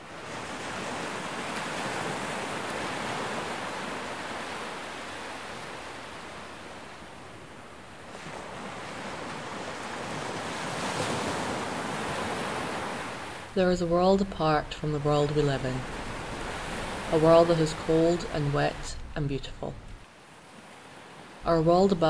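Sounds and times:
wind: 0.0s - 22.0s
sea surf splashing against rocks: 14.5s - 20.0s.

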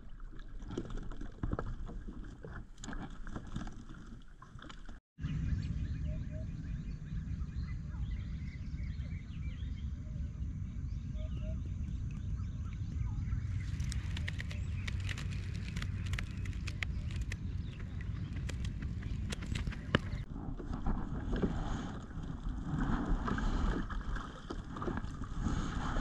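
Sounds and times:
small birds chirping: 5.2s - 20.3s
low rumble: 5.2s - 24.2s.

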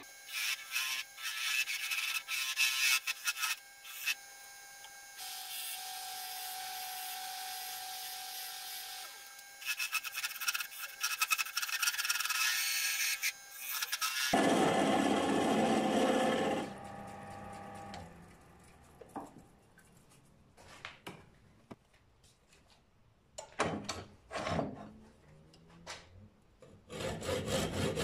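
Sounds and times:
lathe hiss and whine: 3.4s - 11.0s.

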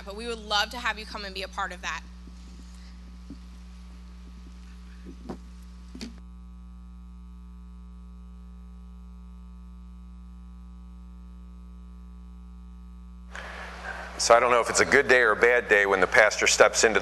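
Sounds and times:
electrical mains hum: 0.0s - 17.0s
background hiss: 2.0s - 6.2s, 13.3s - 17.0s.

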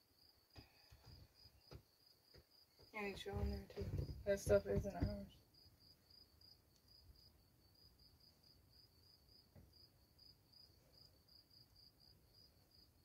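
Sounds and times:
cricket chirping faintly: 0.0s - 13.0s
soft bump: 2.9s - 5.4s.

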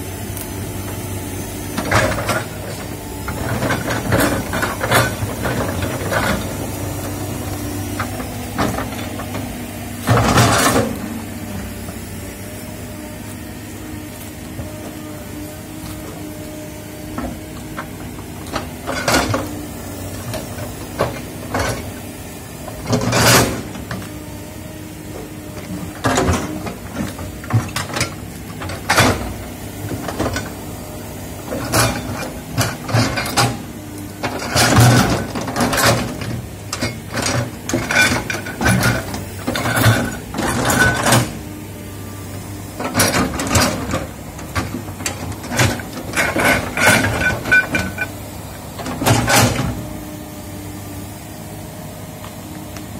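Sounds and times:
excavator diesel engine running: 0.0s - 52.9s
excavator bucket clanking: 1.7s - 6.7s, 31.4s - 41.5s, 42.7s - 50.0s.

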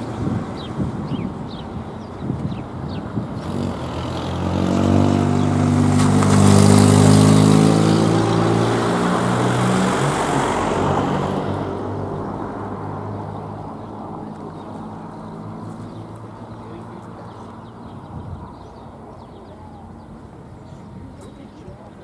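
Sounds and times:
car driving past: 3.4s - 16.1s.

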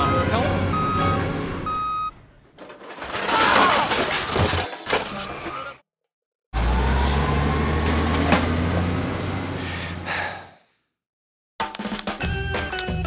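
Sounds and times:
truck engine rumble: 0.0s - 2.7s, 6.6s - 10.4s.

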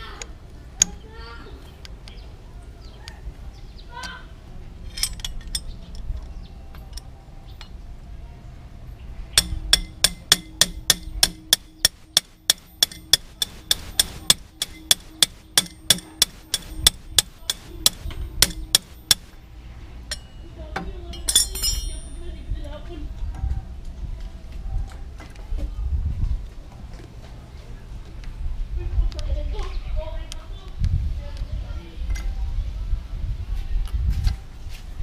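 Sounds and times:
metal-on-metal tapping: 9.4s - 19.4s, 20.1s - 22.2s.

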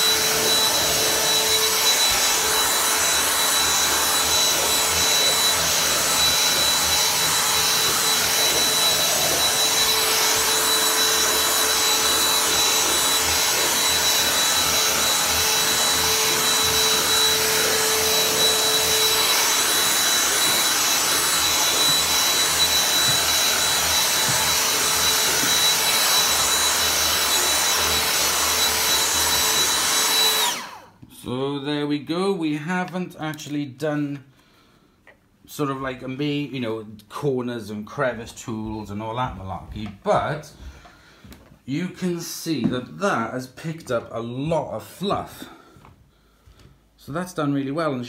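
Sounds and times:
handheld vacuum cleaner whine: 0.0s - 31.1s.

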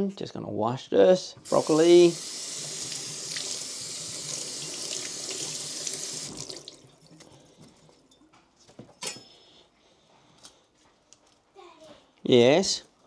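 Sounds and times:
kitchen tap running into sink: 1.4s - 7.3s.

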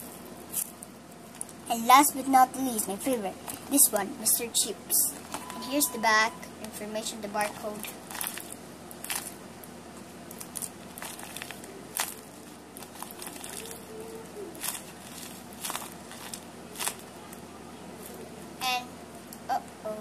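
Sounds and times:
paper crinkling: 7.7s - 9.4s, 10.2s - 18.3s.

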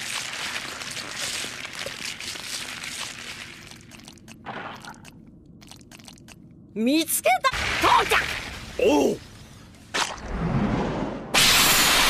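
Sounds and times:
dense crackling hiss: 7.6s - 9.9s.

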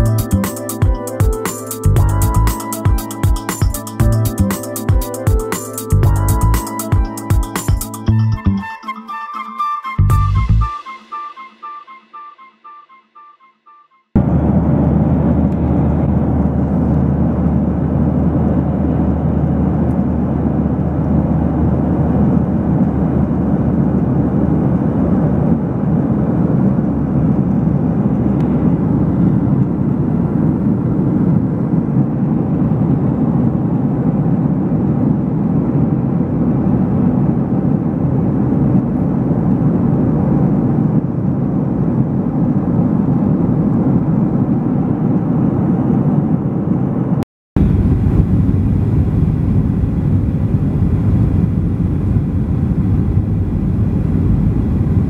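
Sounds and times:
constant low hum: 0.0s - 0.4s, 14.2s - 55.0s
jet engines and rushing air roar: 14.2s - 55.0s.

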